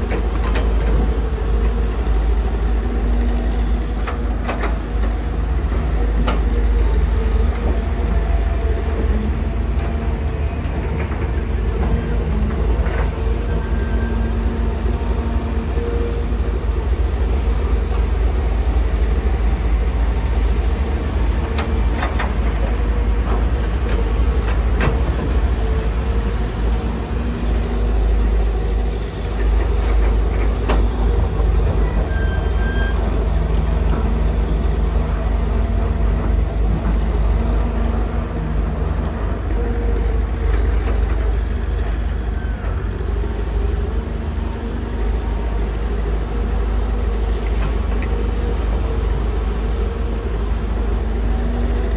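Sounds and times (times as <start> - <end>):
heavy diesel engines rumbling: 0.0 - 51.9.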